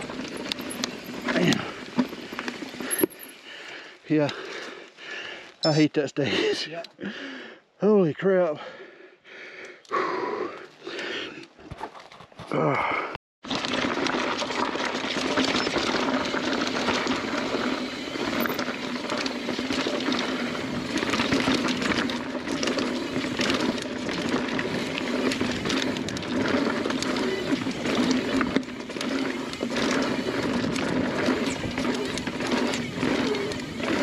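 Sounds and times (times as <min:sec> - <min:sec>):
bike rattling over rough ground: 0:00.0 - 0:04.8, 0:13.4 - 0:34.0
bike tyres on rocky dirt: 0:00.0 - 0:06.7, 0:10.4 - 0:34.0.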